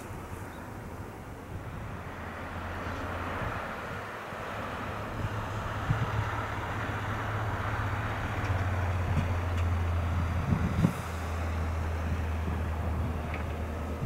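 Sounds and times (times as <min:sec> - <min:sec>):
low vehicle hum: 0:00.0 - 0:14.0
wind bumps on microphone: 0:05.2 - 0:06.5, 0:08.6 - 0:14.0.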